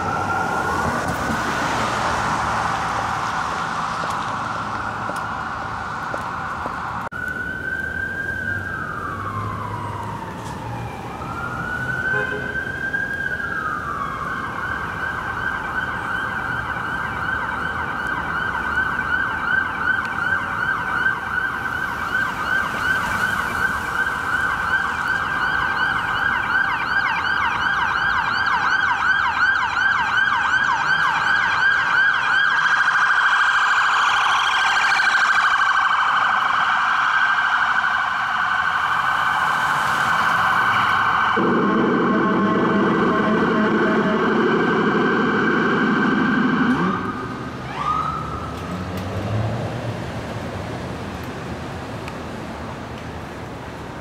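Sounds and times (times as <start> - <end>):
electronic siren wailing and yelping: 40.1 - 48.5.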